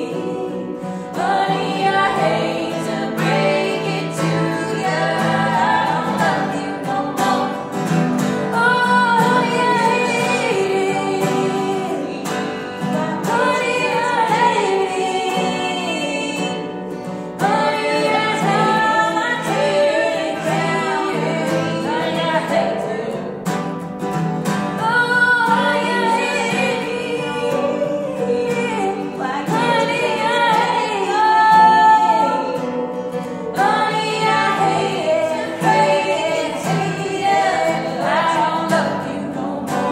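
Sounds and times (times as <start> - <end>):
acoustic guitar: 0.0 - 39.9
women singing: 0.0 - 39.9.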